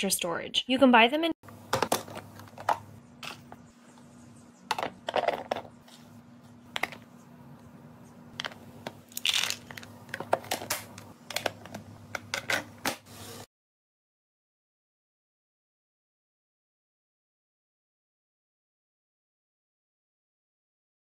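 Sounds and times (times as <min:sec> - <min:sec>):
food pieces rattling into plastic: 0:09.1 - 0:10.8.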